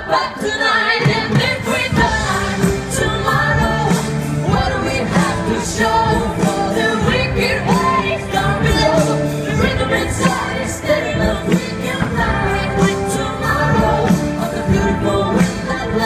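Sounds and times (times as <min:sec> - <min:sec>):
pop backing track with beat: 0:00.0 - 0:16.0.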